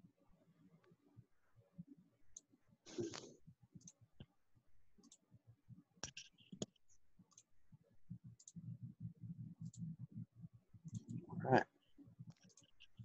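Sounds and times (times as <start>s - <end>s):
faint low rumble: 7.0s - 13.0s.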